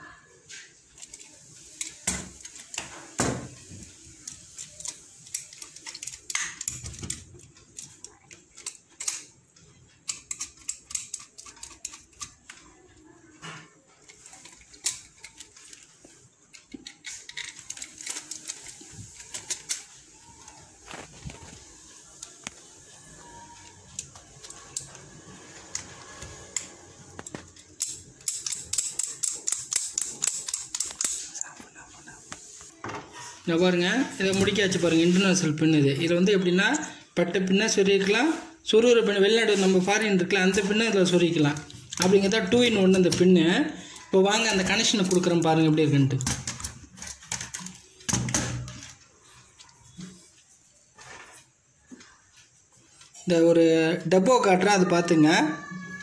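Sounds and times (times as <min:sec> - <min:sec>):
plastic modules clicking: 0:26.6 - 0:31.3.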